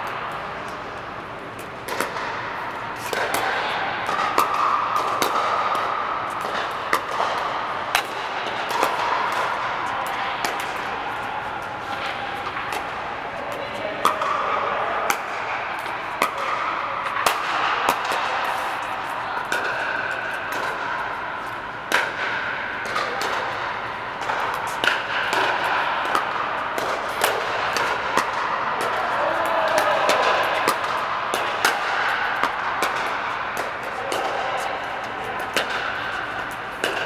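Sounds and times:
paddles striking plastic balls: 0:21.9 - 0:37.0.

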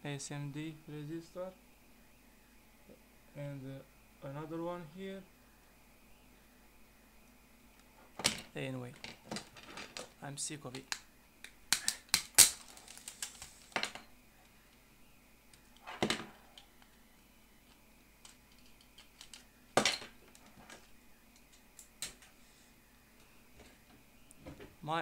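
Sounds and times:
plastic parts clicking: 0:18.2 - 0:19.5.

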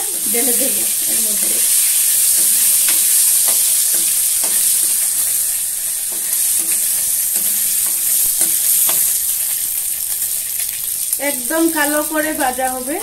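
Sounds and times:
spices sizzling in hot oil: 0:00.0 - 0:13.0.

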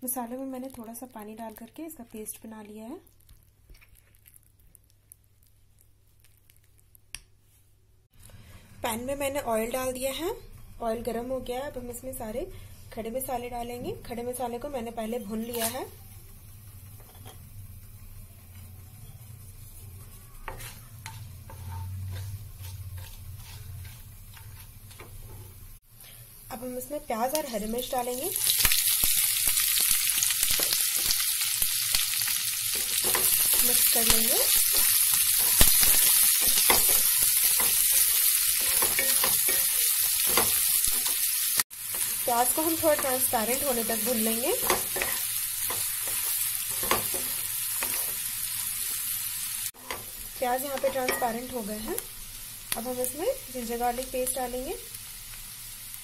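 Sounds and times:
spices sizzling in oil: 0:00.0 - 0:07.1, 0:08.8 - 0:56.0
spatula scraping pan: 0:18.5 - 0:25.6, 0:32.7 - 0:41.2, 0:44.0 - 0:48.3.

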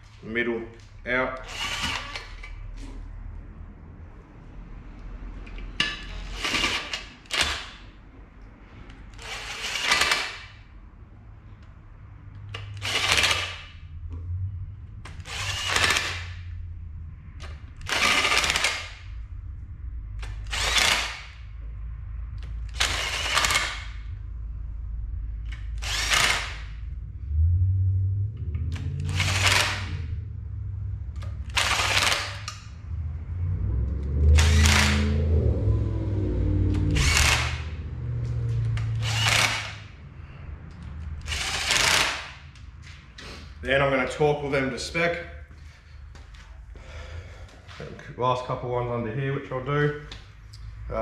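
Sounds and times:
cordless drill spinning bolts: 0:01.4 - 0:02.6, 0:05.8 - 0:07.8, 0:09.1 - 0:10.6, 0:12.5 - 0:13.8, 0:15.1 - 0:16.4, 0:17.4 - 0:19.0, 0:20.2 - 0:21.4, 0:22.4 - 0:24.0, 0:25.5 - 0:26.7, 0:28.7 - 0:30.0, 0:31.2 - 0:32.6, 0:34.4 - 0:35.1, 0:36.7 - 0:37.7, 0:38.6 - 0:39.9, 0:41.2 - 0:42.4.

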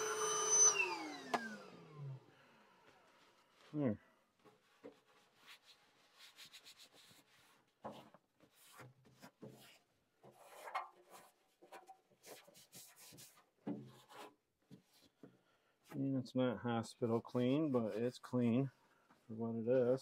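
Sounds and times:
hands and tools rubbing and scraping: 0:03.2 - 0:15.2.

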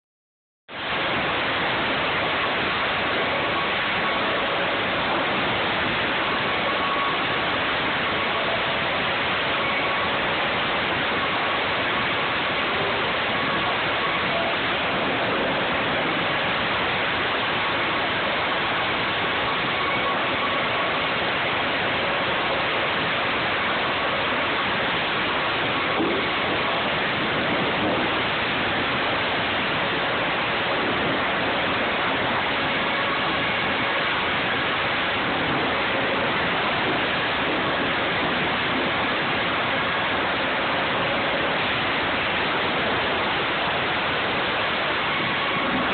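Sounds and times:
faint steady whine: 0:00.7 - 0:45.9.

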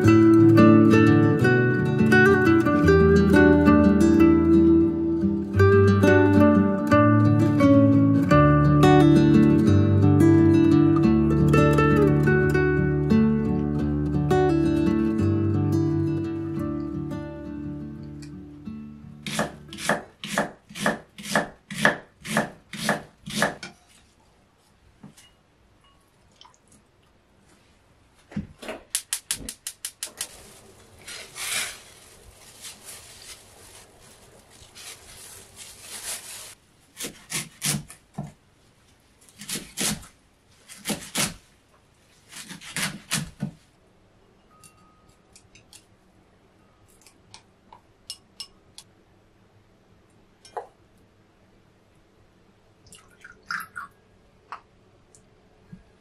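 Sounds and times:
scraping on cutting board: 0:31.0 - 0:31.9.

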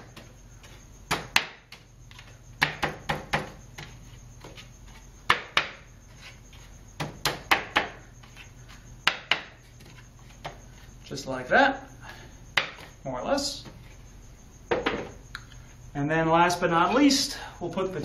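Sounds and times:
wooden stool pieces knocking: 0:05.3 - 0:05.8, 0:07.0 - 0:08.0, 0:09.0 - 0:10.6, 0:12.6 - 0:12.9, 0:14.7 - 0:15.2.

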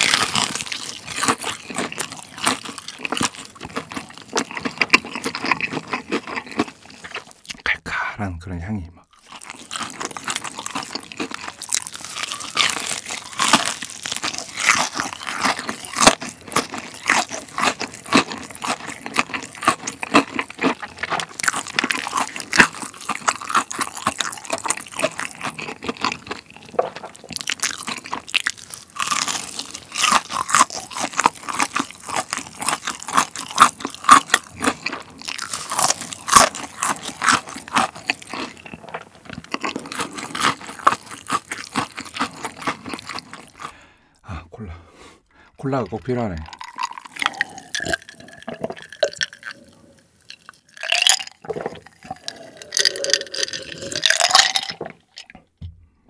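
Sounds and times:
crunchy chewing of fried chicken: 0:00.0 - 0:07.6, 0:09.1 - 0:44.3, 0:45.2 - 0:55.5.

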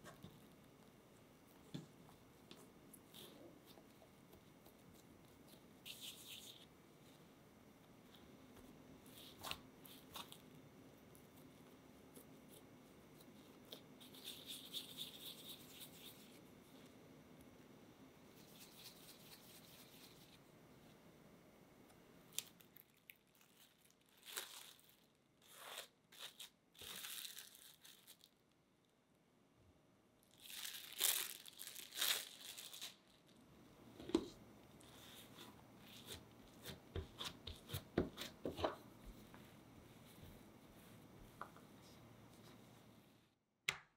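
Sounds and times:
cling film crinkling and tearing: 0:22.3 - 0:28.5, 0:30.3 - 0:33.4.

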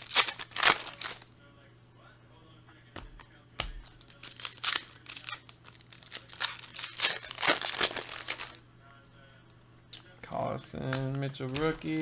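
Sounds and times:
foil wrappers crinkling: 0:00.0 - 0:01.3, 0:03.6 - 0:08.6, 0:10.8 - 0:12.0.

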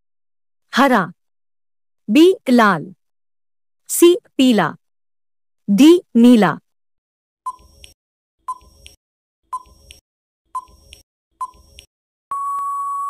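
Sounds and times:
timer ticks: 0:10.6 - 0:11.9.

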